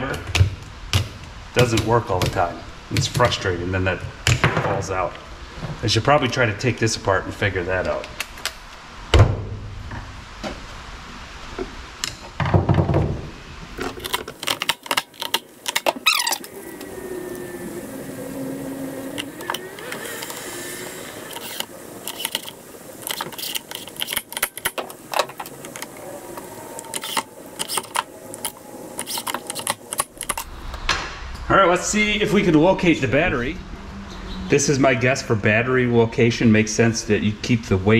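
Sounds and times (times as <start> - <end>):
clicks and knocks of handled parts: 13.8 - 16.5, 21.3 - 30.5.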